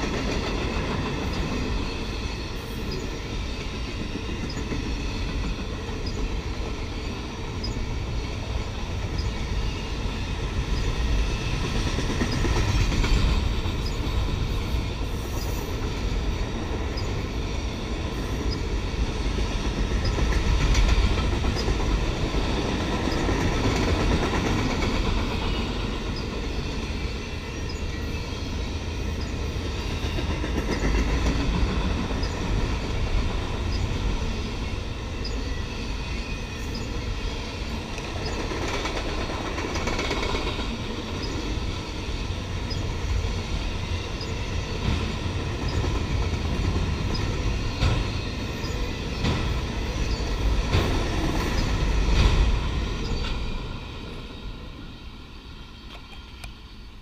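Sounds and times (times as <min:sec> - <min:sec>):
train wheels rumbling on rail: 0:00.0 - 0:57.0
wheels clicking over rail joints: 0:37.8 - 0:53.7.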